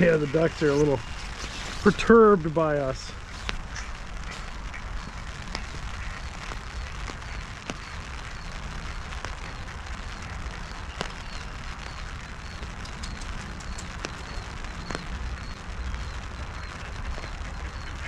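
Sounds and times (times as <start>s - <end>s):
rain on an umbrella: 0.0s - 18.0s.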